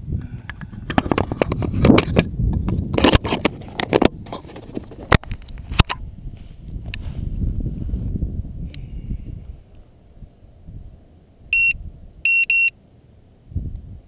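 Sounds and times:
low wind rumble on microphone: 0.0s - 12.3s, 13.2s - 14.0s
camera housing handling clicks and scrapes: 0.4s - 6.0s.

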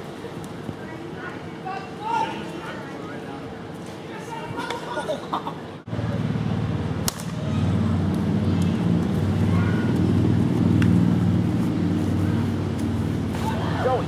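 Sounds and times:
steady low hum: 5.2s - 14.0s
plastic bat hitting ball: 7.0s - 7.4s.

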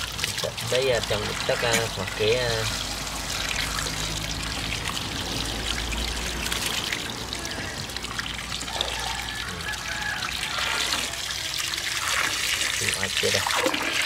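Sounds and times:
hose water splashing into basin: 0.0s - 14.0s.

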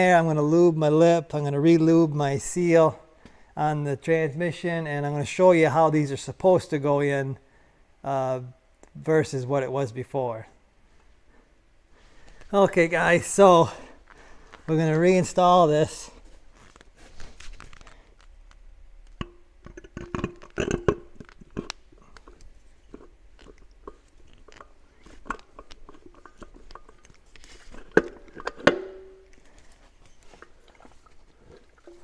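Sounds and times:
metal clicks and scrapes: 16.6s - 30.6s
metal clunks ringing: 28.6s - 29.3s.

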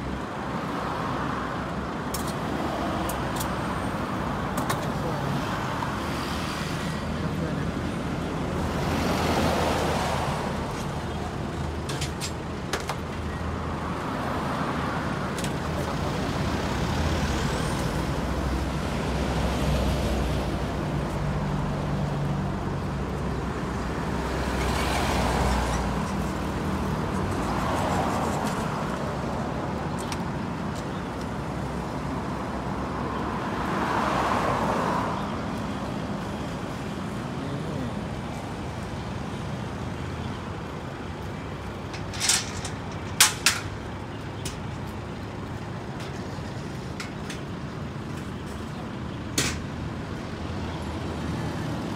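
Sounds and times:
vehicles passing: 0.0s - 51.9s.

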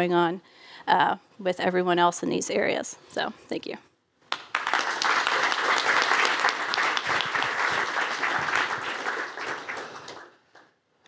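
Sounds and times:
audience applauding: 4.3s - 10.7s.

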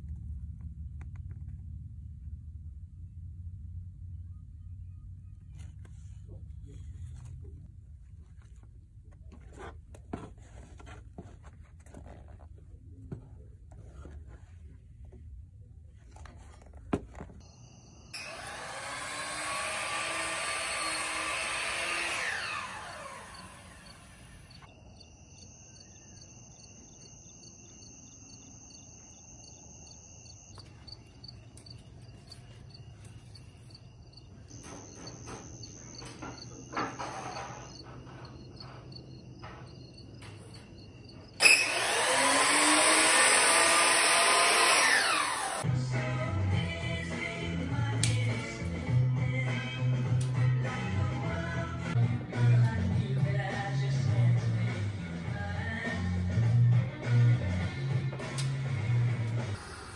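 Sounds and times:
insects chirping: 17.4s - 18.3s, 22.8s - 42.0s
miter saw motor whine: 17.7s - 24.7s, 34.5s - 38.0s, 41.4s - 45.6s.

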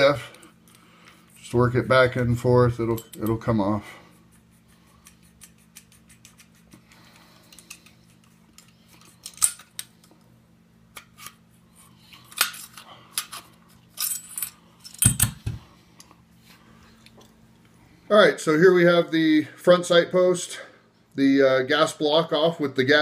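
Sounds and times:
metal clinking and scraping: 12.1s - 15.3s.

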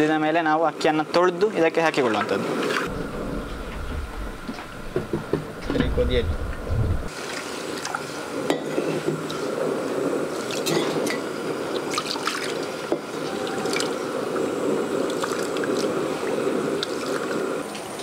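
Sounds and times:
water splashing and dripping: 11.8s - 12.6s.

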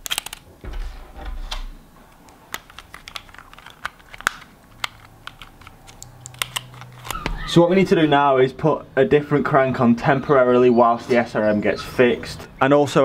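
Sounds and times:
camera plastic clicks and handling: 2.5s - 7.2s.

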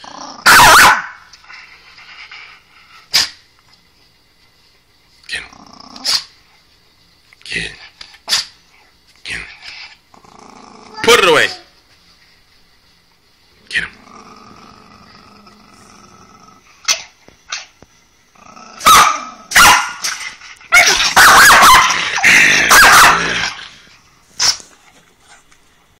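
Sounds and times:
dog growling: 0.0s - 0.5s, 5.3s - 6.3s, 9.4s - 11.3s, 13.6s - 16.8s, 18.3s - 19.5s, 21.8s - 24.0s
dog barking: 0.4s - 1.2s, 18.8s - 20.0s, 20.7s - 22.0s, 22.6s - 23.4s.

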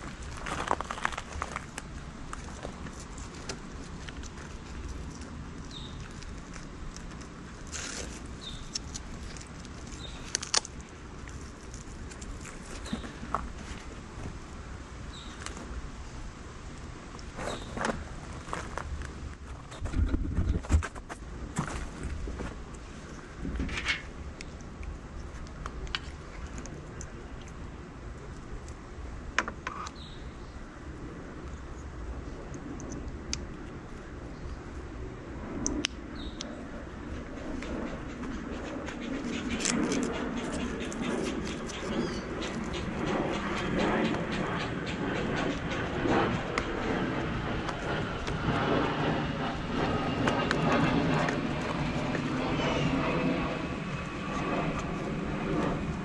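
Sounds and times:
outdoor background noise: 0.0s - 56.0s.

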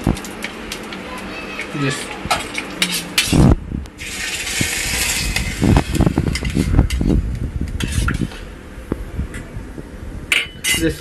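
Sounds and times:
hot oil sizzling: 3.9s - 7.0s.

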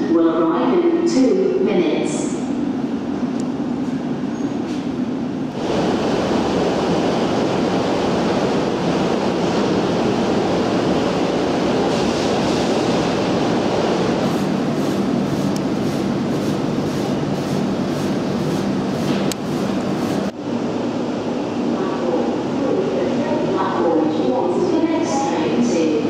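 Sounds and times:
train rushing: 2.8s - 26.0s.

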